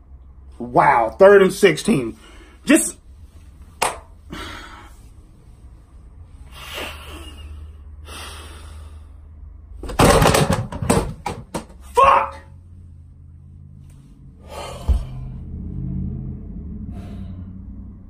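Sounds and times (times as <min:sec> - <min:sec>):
low steady hum: 0:00.0 - 0:11.5
loud bangs and knocks: 0:09.8 - 0:11.8.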